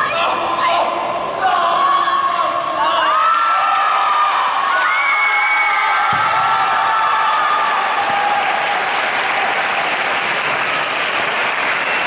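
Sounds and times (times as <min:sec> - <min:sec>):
people cheering: 0:02.8 - 0:12.0
audience applauding: 0:06.4 - 0:12.0.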